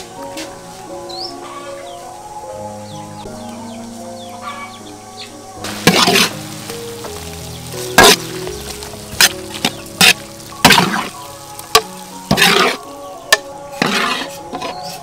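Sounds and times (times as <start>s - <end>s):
food sizzling: 5.6s - 14.7s
spatula scraping pan: 5.8s - 6.5s, 8.0s - 15.0s.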